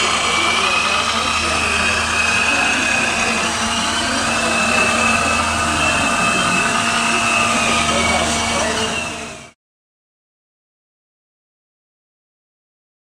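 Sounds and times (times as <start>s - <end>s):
electric motor and gearbox whine: 0.0s - 9.6s
steady low drone: 0.0s - 9.6s.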